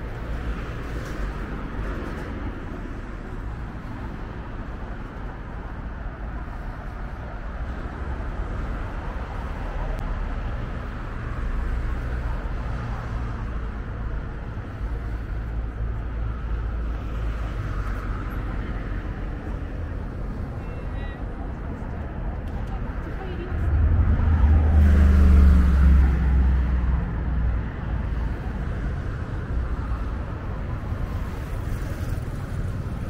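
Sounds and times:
traffic noise: 0.0s - 33.0s
low vehicle rumble: 21.2s - 33.0s.

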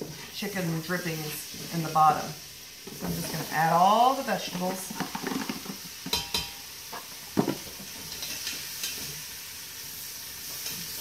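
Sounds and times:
vegetables sizzling in butter: 0.0s - 11.0s
spoon scraping and knocking pot: 4.5s - 9.0s.

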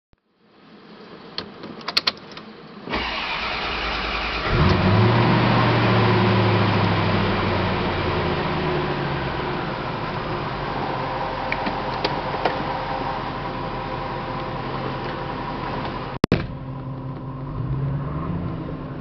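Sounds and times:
car engine idling: 2.9s - 17.8s.

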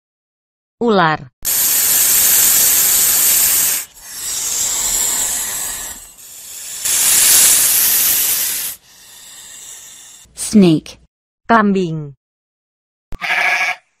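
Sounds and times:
snake hissing: 1.4s - 10.3s.

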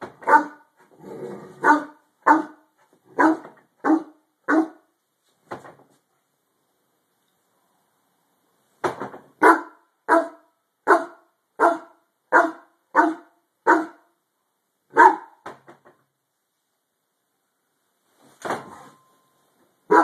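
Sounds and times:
dog barking: 0.2s - 0.7s, 1.6s - 4.9s, 9.4s - 14.1s, 14.9s - 15.4s.

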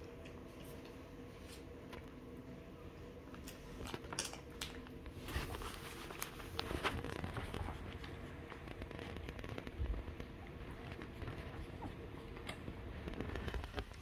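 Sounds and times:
puppies suckling: 5.0s - 14.0s.

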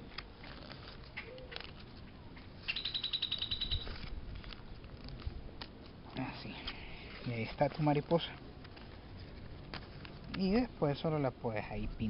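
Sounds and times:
paper being folded: 0.0s - 2.1s, 3.6s - 10.6s
bird trilling: 2.6s - 4.1s.

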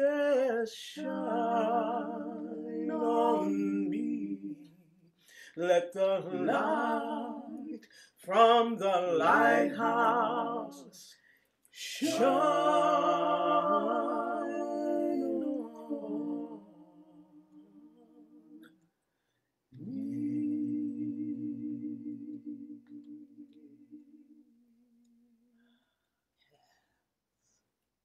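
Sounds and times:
woman singing a cappella: 0.0s - 4.7s, 5.6s - 11.1s, 11.8s - 18.7s.

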